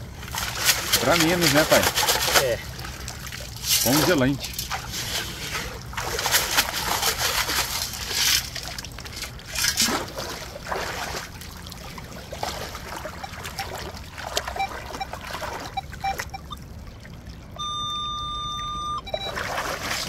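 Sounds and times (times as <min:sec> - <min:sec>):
boots wading through water: 0:00.0 - 0:17.8, 0:18.6 - 0:20.0.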